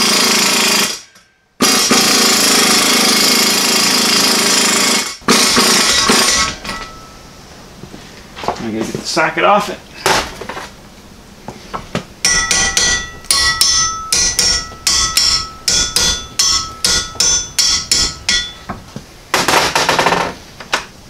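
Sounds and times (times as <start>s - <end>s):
hammer ringing on metal: 12.2s - 19.6s.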